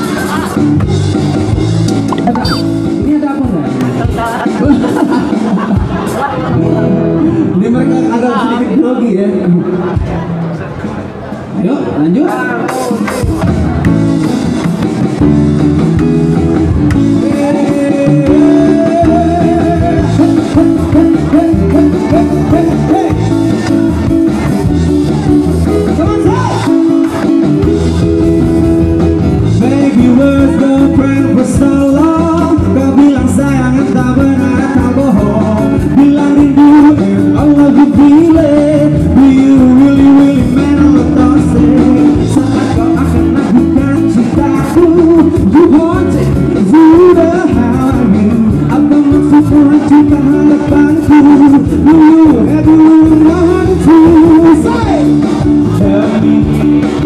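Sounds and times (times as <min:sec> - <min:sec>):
drums: 0:00.0 - 0:08.5, 0:09.8 - 0:11.6, 0:12.2 - 0:57.0
electric guitars: 0:00.0 - 0:08.8, 0:12.6 - 0:57.0
man singing into a microphone: 0:16.9 - 0:24.2, 0:29.4 - 0:57.0.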